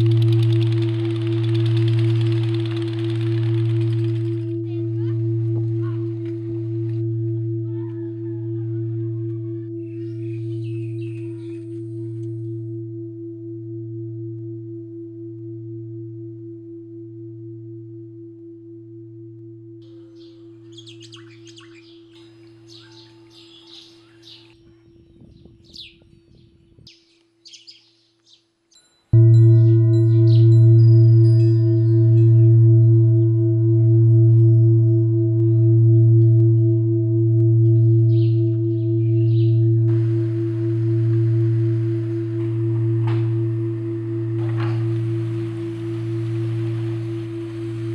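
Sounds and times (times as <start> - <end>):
singing bowl drone: 0.0 - 24.9, 29.1 - 47.9
deep bell tone ringing: 0.0 - 25.1, 29.1 - 47.9
bird chirps: 7.9 - 12.6, 19.9 - 31.6, 37.6 - 40.0.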